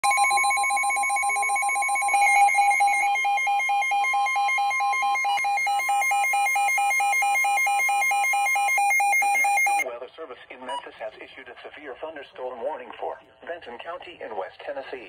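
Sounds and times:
weather radio alarm beeping: 0.0 - 9.8.

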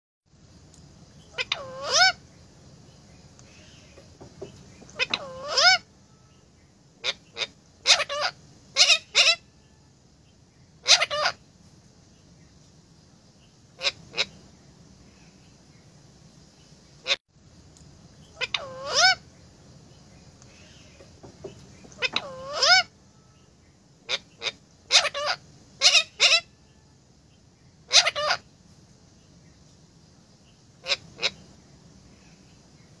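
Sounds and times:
parakeets squawking: 1.3 - 2.2, 3.5 - 5.8, 7.0 - 9.5, 10.8 - 11.4, 13.8 - 14.4, 18.3 - 19.2, 20.6 - 22.9, 24.1 - 26.5, 27.9 - 28.4, 30.8 - 31.4.

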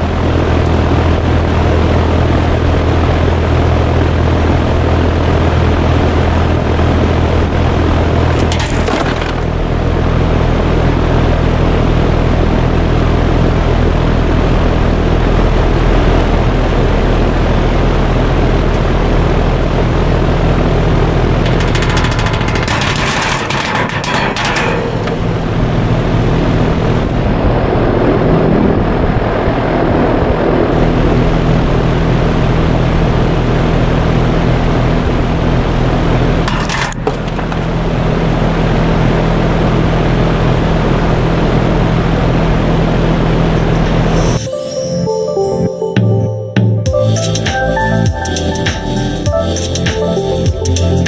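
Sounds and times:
fan air rushing: 0.0 - 44.5, 46.9 - 51.0
low electrical hum: 0.0 - 44.5
higher-pitched noise burst: 43.6 - 51.0.

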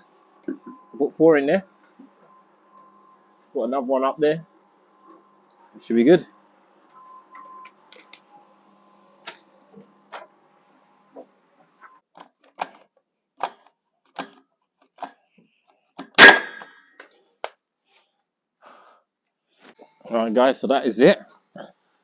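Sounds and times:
nail gun bang: 16.1 - 16.8.

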